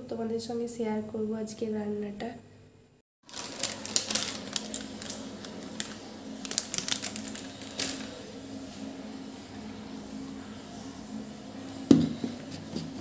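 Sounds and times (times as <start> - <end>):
steady low hum: 3.6 - 13.0.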